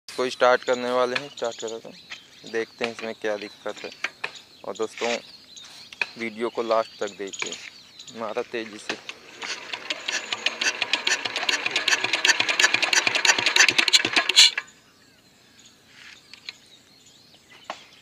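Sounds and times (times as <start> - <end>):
engine cranked by hand clattering: 8.7 - 14.7.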